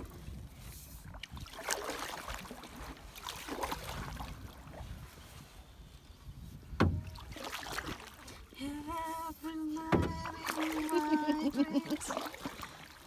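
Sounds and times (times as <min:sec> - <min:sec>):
wind rumble on microphone: 0:00.0 - 0:01.6, 0:02.7 - 0:10.4
paddle swishing through water: 0:00.0 - 0:13.0.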